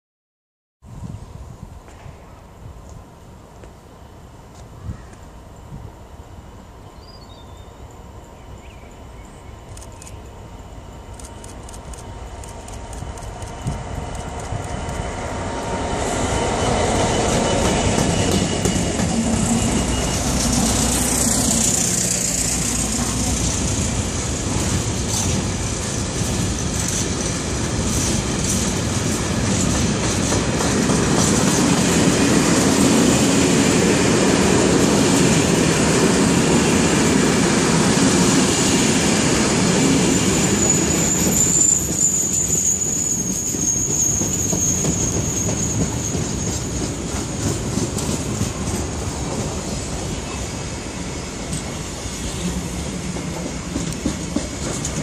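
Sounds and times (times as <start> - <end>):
train wheels rumbling on rail: 7.9 - 55.0
high-pitched wheel squeal: 40.1 - 46.9.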